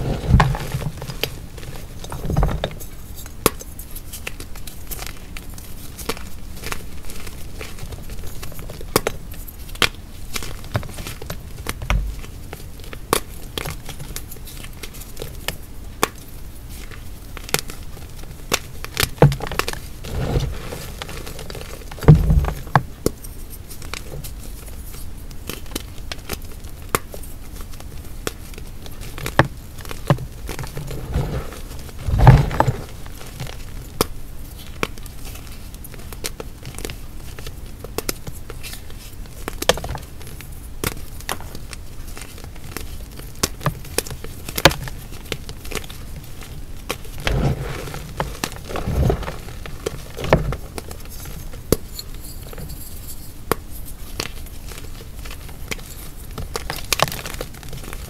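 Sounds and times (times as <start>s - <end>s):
heavy crunches with low thud: 0.0s - 2.8s, 19.2s - 22.9s, 29.4s - 33.4s, 47.2s - 51.0s
chalk crackling crushed by hand: 0.0s - 58.0s.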